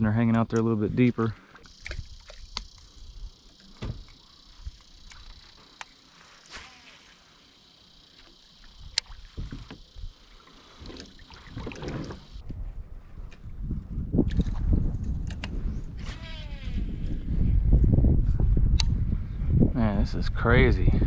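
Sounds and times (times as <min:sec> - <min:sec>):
water sounds: 0:01.1 - 0:12.4
steady high hiss: 0:01.2 - 0:12.4.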